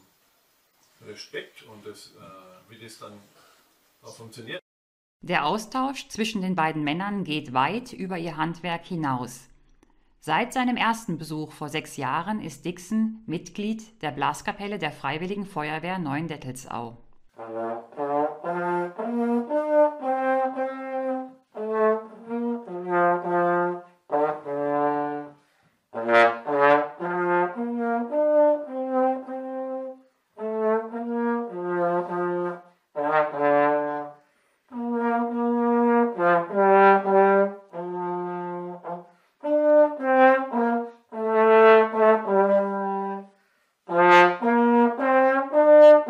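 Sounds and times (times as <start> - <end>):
solo trombone melody: 17.3 - 46.0.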